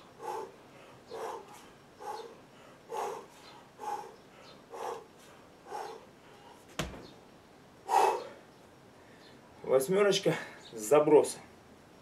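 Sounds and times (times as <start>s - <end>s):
thump: 6.8s - 7.1s.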